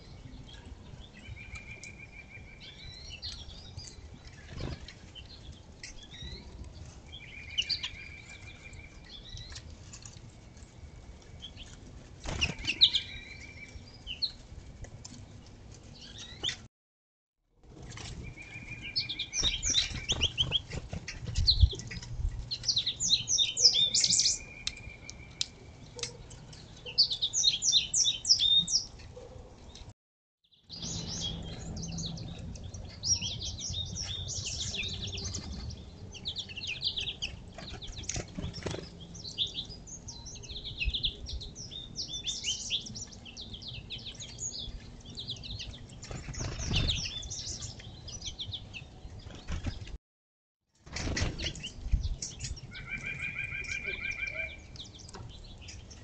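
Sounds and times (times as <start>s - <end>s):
songbirds chirping and trilling: 0.0s - 16.7s, 17.6s - 29.9s, 30.6s - 50.0s, 50.8s - 56.0s
wing flutters: 46.0s - 47.2s.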